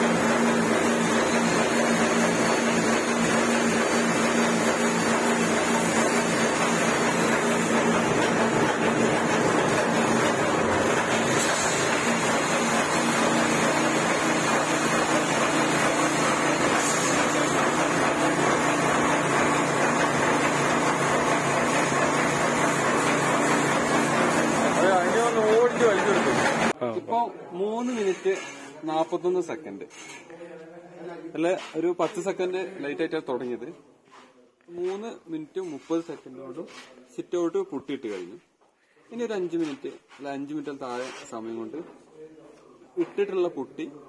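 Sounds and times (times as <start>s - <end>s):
spray machine motor hum: 0.0s - 26.7s.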